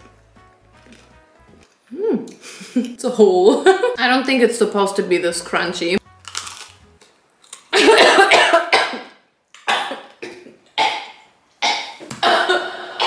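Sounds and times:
woman coughing hard: 0:07.8 - 0:09.1, 0:09.7 - 0:11.0, 0:11.7 - 0:12.8.

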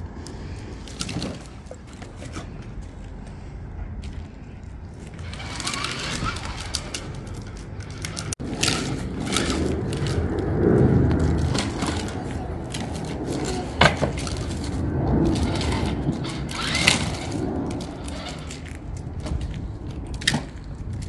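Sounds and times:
rumble and scraping on tarmac: 0:00.0 - 0:21.0
plastic toy clattering on ground: 0:05.1 - 0:10.2, 0:11.2 - 0:21.0.

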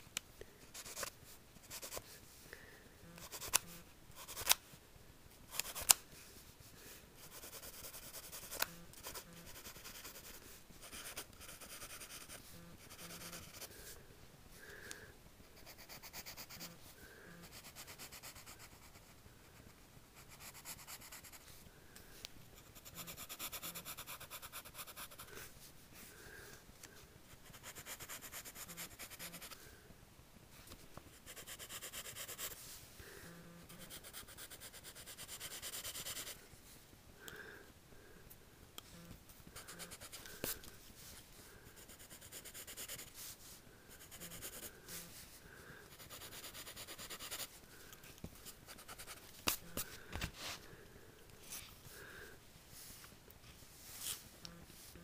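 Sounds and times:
pencil scratching on paper: 0:00.7 - 0:02.1, 0:03.2 - 0:04.6, 0:07.2 - 0:13.8, 0:15.6 - 0:16.8, 0:17.4 - 0:19.1, 0:19.8 - 0:21.4, 0:22.6 - 0:25.3, 0:27.4 - 0:29.6, 0:31.2 - 0:32.6, 0:33.6 - 0:36.4, 0:39.6 - 0:40.3, 0:41.8 - 0:43.2, 0:44.0 - 0:45.1, 0:45.9 - 0:47.5, 0:48.7 - 0:49.6.

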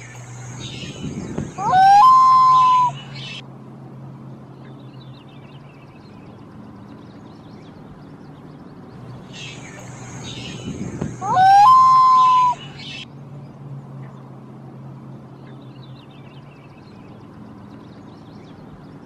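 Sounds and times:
low steady hum: 0:00.0 - 0:19.0
loon call: 0:01.6 - 0:03.4, 0:11.2 - 0:12.9.

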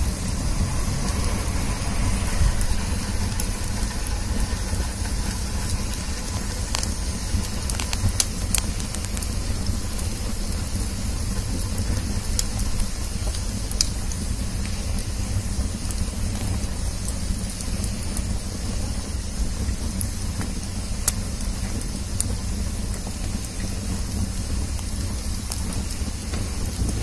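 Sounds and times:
low rumble: 0:00.0 - 0:09.4
wood fire crackling and popping: 0:00.0 - 0:27.0.

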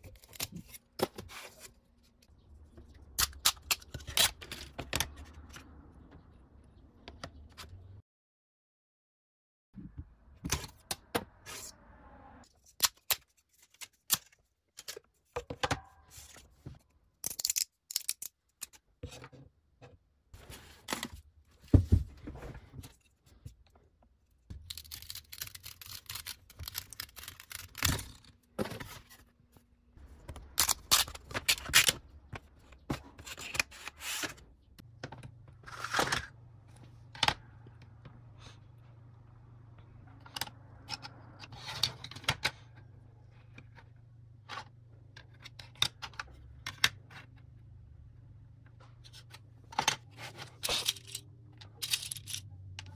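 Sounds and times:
plastic parts clicking and scraping: 0:00.0 - 0:06.4, 0:12.6 - 0:21.3, 0:22.8 - 0:29.3, 0:39.9 - 0:47.6, 0:48.7 - 0:52.9.

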